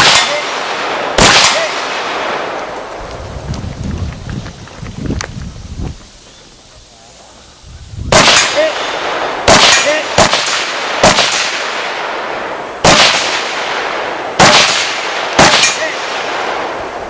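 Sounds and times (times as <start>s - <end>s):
rifle shots echoing: 0.0s - 2.8s, 8.1s - 17.0s.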